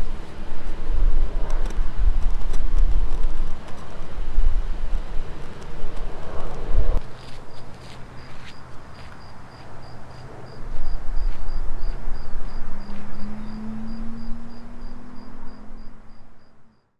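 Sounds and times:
cricket chirping: 7.5 - 16.9
low hum rising in pitch: 10.8 - 16.9.

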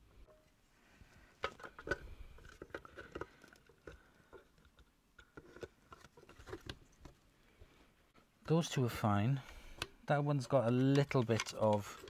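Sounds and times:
hard plastic parts clicking: 1.3 - 7.2, 9.4 - 12.0.

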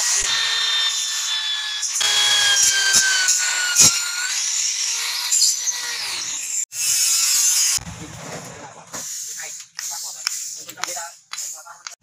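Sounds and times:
electric drill whining: 0.0 - 7.8.

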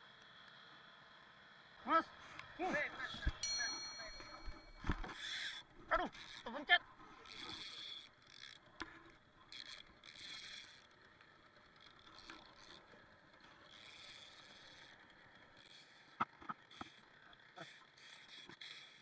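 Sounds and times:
fishing reel whirring: 7.1 - 19.0.

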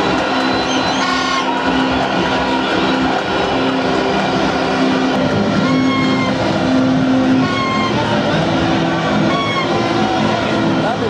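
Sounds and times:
stadium crowd roaring: 0.0 - 11.0
long horn notes: 5.1 - 10.7.

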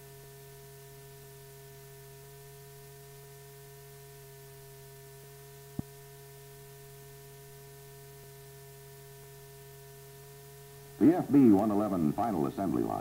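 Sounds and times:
electrical hum: 0.0 - 13.0
faint film hiss: 0.0 - 13.0.

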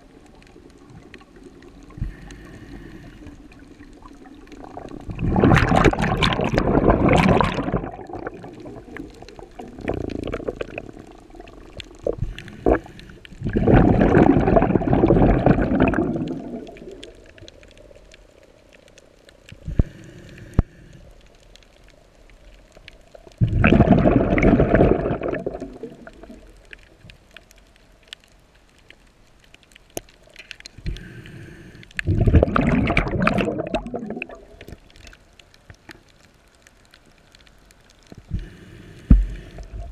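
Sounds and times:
diver's breath bubbling underwater: 4.6 - 17.1, 23.4 - 26.5, 32.0 - 34.7.

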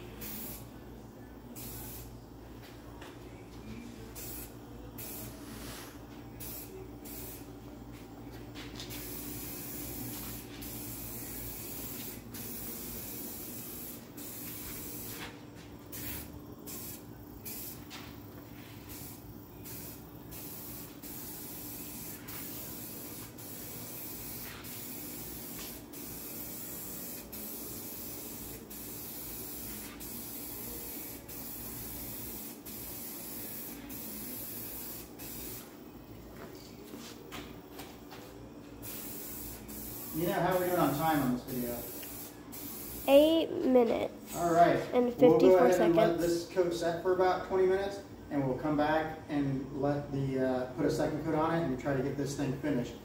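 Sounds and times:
aerosol can spraying hiss: 6.4 - 7.5, 8.9 - 18.0, 18.8 - 35.7, 38.8 - 43.3.

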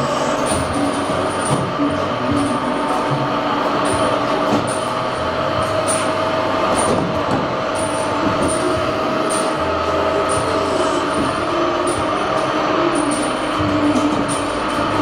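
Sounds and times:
deeper hum: 0.0 - 15.0
mechanical hum with whine: 0.0 - 15.0.

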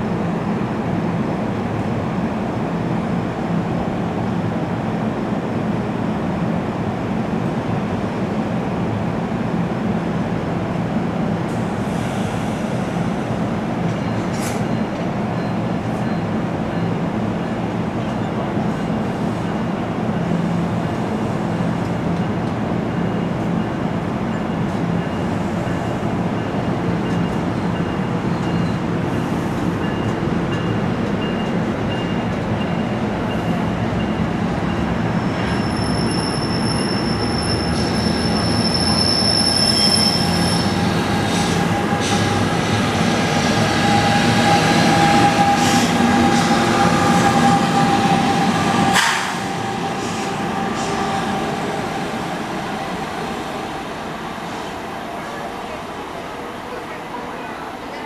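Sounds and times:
train wheels rumbling on rails: 10.4 - 58.0
locomotive whine: 29.9 - 56.4
high thin squeal: 35.4 - 42.3.

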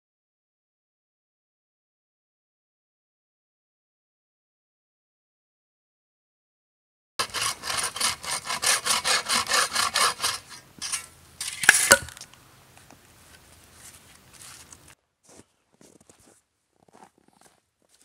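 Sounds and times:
bow saw cutting log: 7.2 - 12.2
faint rustling: 10.8 - 18.0.

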